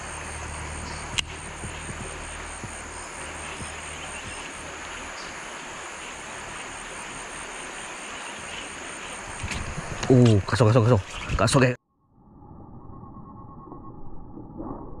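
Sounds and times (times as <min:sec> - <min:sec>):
low hum: 0:00.0 - 0:07.8, 0:11.9 - 0:15.0
steady rushing noise: 0:00.0 - 0:11.4.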